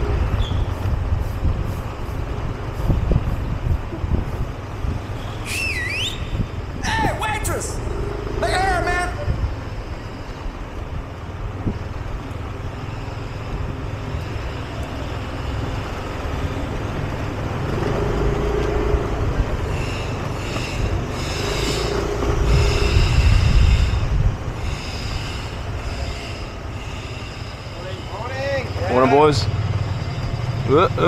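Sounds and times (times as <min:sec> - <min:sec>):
wind rumble on microphone: 0:00.0 - 0:12.6, 0:19.0 - 0:25.9
passing traffic: 0:00.0 - 0:31.0.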